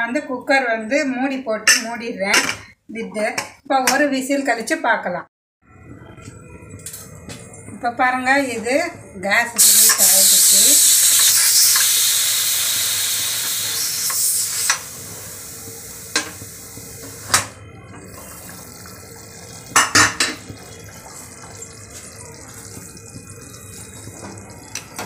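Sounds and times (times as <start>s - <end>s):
pressure cooker steam hissing: 9.6s - 17.4s.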